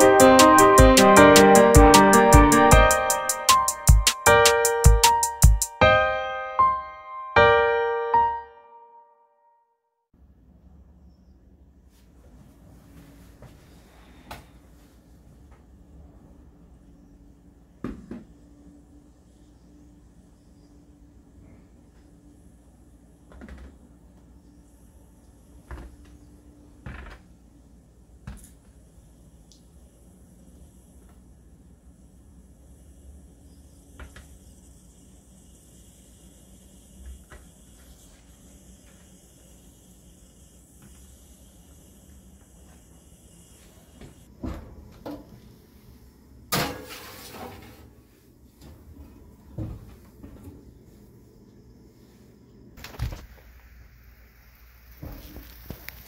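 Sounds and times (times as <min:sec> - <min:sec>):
metal tray clattering on oven rack: 0:46.5 - 0:47.9.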